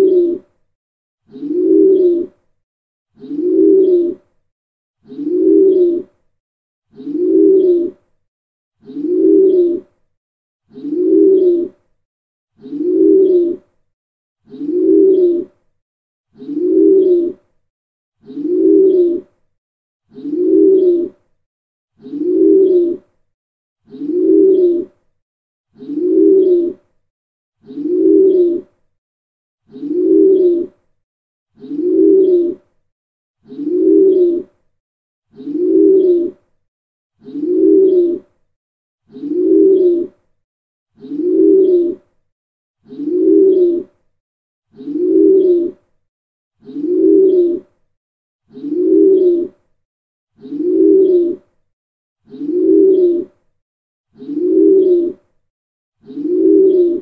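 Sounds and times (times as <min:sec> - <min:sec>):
pigeon cooing: 0:00.0 - 0:00.4, 0:01.3 - 0:02.3, 0:03.2 - 0:04.3, 0:05.0 - 0:06.1, 0:06.9 - 0:08.0, 0:08.8 - 0:09.9, 0:10.7 - 0:11.8, 0:12.6 - 0:13.6, 0:14.5 - 0:15.6, 0:16.4 - 0:17.4, 0:18.2 - 0:19.3, 0:20.1 - 0:21.2, 0:22.0 - 0:23.1, 0:23.9 - 0:25.0, 0:25.8 - 0:26.8, 0:27.6 - 0:28.7, 0:29.7 - 0:30.7, 0:31.6 - 0:32.6, 0:33.4 - 0:34.5, 0:35.3 - 0:36.4, 0:37.2 - 0:38.2, 0:39.1 - 0:40.2, 0:41.0 - 0:42.0, 0:42.8 - 0:43.8, 0:44.8 - 0:45.8, 0:46.6 - 0:47.7, 0:48.5 - 0:49.5, 0:50.4 - 0:51.4, 0:52.3 - 0:53.3, 0:54.2 - 0:55.2, 0:56.0 - 0:57.0.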